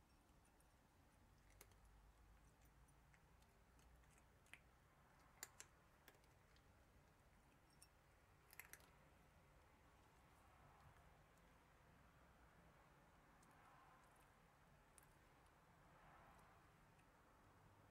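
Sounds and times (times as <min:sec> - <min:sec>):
cat crunching dry kibble: 0:01.2 - 0:09.2.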